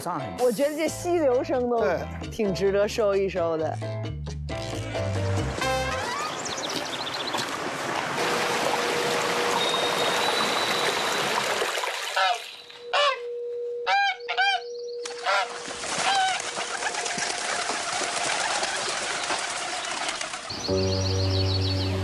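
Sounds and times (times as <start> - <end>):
waterfowl calling: 5.8 - 20.8
stream running over stones: 6.3 - 12.7, 15.5 - 20.6.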